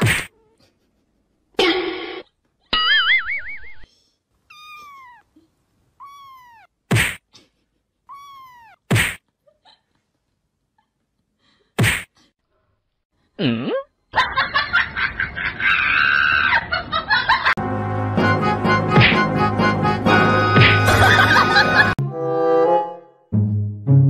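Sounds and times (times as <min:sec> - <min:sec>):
sharp slaps: 0:00.0 - 0:00.3, 0:06.9 - 0:07.2, 0:08.9 - 0:09.2, 0:11.8 - 0:12.2
cat meowing: 0:04.5 - 0:05.4, 0:06.0 - 0:06.7, 0:08.1 - 0:08.9
upbeat music: 0:17.6 - 0:22.1.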